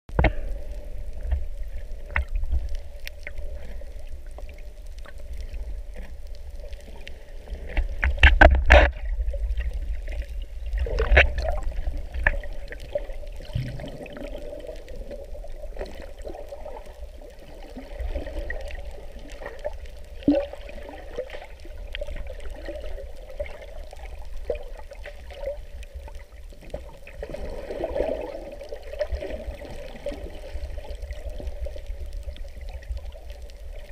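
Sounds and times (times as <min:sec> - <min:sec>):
low rumble: 0:00.1 - 0:20.2
water sloshing and gurgling: 0:00.1 - 0:33.9
bubbly bursts: 0:13.0 - 0:15.2.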